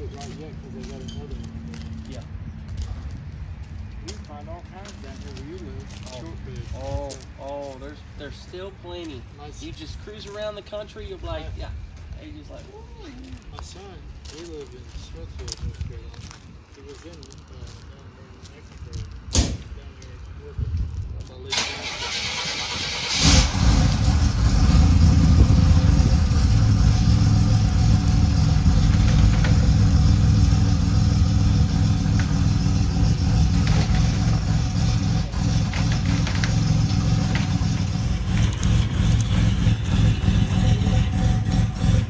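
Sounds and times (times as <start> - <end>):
car engine starting and idling: 21.5 - 42.0.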